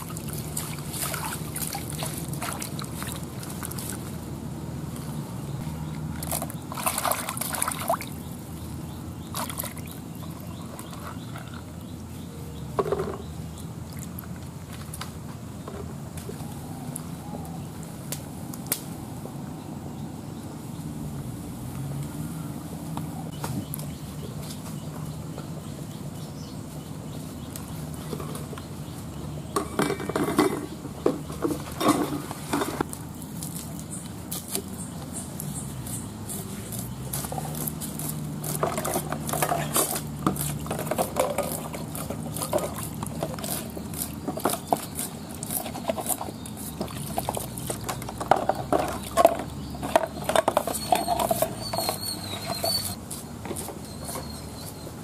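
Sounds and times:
water splashing in bowl: 0.0 - 4.2, 6.0 - 8.2.

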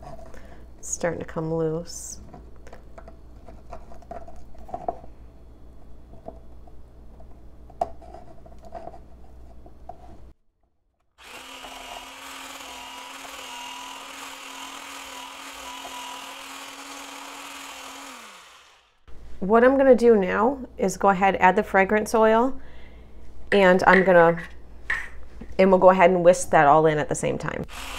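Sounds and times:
immersion blender running: 11.2 - 19.1, 27.7 - 27.9.

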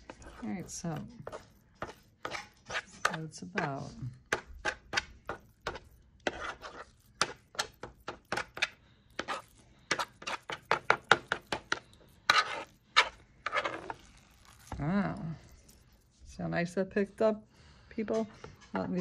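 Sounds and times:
knife chopping meat: 0.0 - 13.1.

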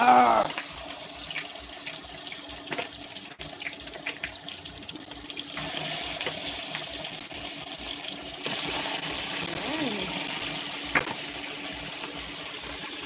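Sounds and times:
fish frying in hot oil: 0.0 - 13.0.

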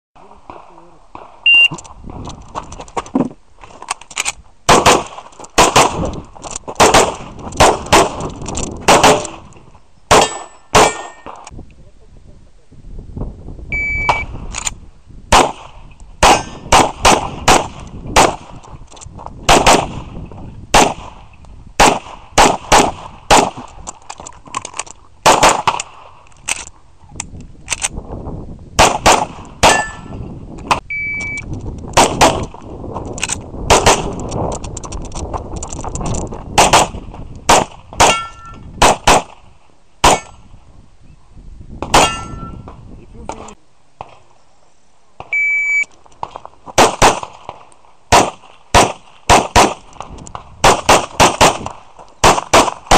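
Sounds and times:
pistol shots: 4.7 - 6.1, 6.7 - 9.5, 10.1 - 11.5, 15.3 - 18.6, 19.5 - 20.1, 20.7 - 21.2, 21.8 - 23.7, 25.2 - 26.0, 28.8 - 30.2, 32.0 - 32.5, 33.7 - 34.2, 36.6 - 40.4, 41.8 - 42.5, 46.2 - 49.9, 50.6 - 52.9
metallic ring of steel targets: 10.2 - 11.4, 16.3 - 16.7, 29.7 - 30.3, 38.1 - 38.7, 40.1 - 40.4, 42.0 - 42.7.

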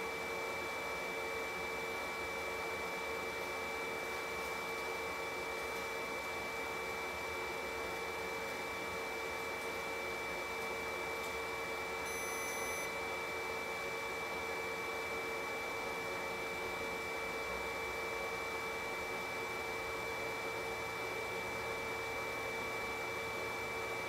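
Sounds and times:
stove ignition fan whine: 0.0 - 24.0
steady hum and hiss: 12.0 - 13.0
faint high beep: 12.1 - 12.9.

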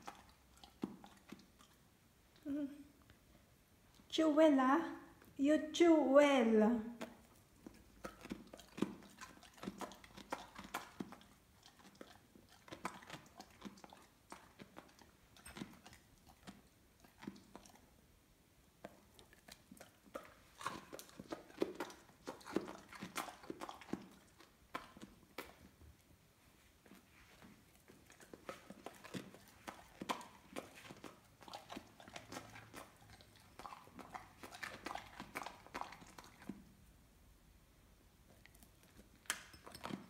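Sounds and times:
dog crunching carrots: 0.0 - 1.8, 6.9 - 18.0, 18.7 - 26.1, 26.7 - 36.9, 38.2 - 40.0.

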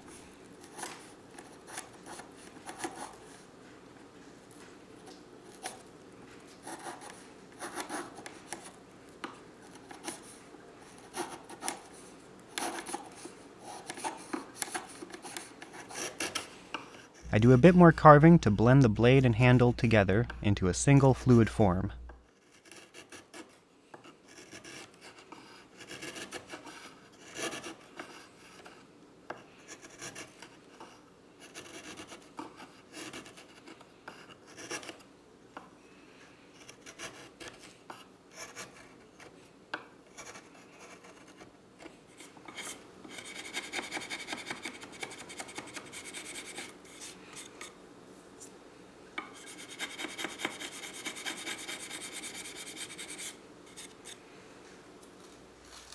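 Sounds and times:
chisel scraping wood: 6.6 - 8.8, 9.6 - 17.3, 22.3 - 35.0, 36.6 - 39.4, 40.1 - 47.6, 49.2 - 54.2.

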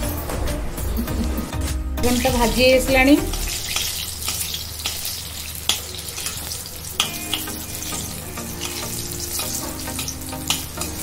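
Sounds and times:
vegetables sizzling in oil: 2.0 - 11.0
steel spatula scraping a pan: 3.2 - 11.0.

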